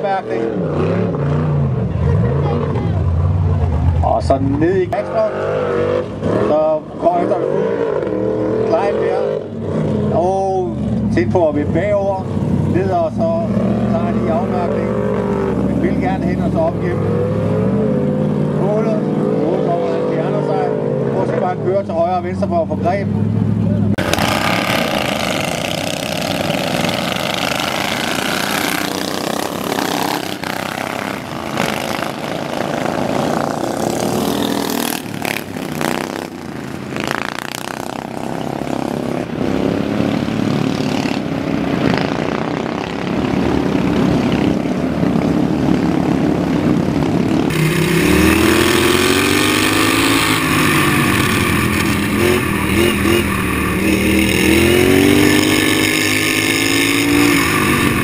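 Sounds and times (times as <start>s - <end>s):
racing lawnmower engines: 0.0s - 58.0s
mower engine revving: 23.3s - 58.0s.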